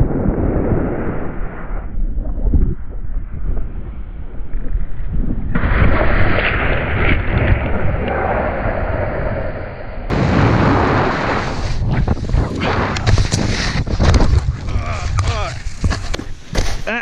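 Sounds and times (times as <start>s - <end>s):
wind rumbling on microphone: 0.0s - 16.9s
snowboard scraping over snow: 10.2s - 17.0s.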